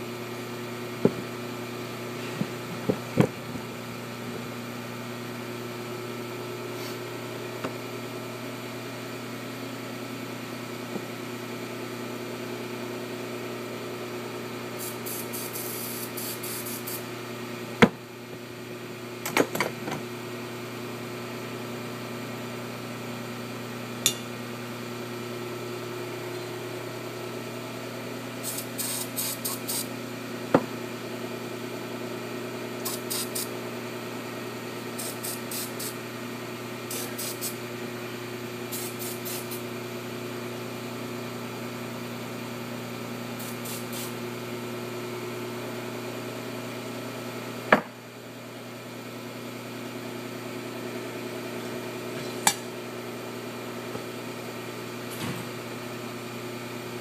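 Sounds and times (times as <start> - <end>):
shop machinery hum: 0.0 - 57.0
spray can hissing: 14.8 - 17.0, 28.4 - 29.9, 32.8 - 33.5, 35.0 - 36.0, 36.9 - 37.6, 38.7 - 39.6, 43.4 - 44.2.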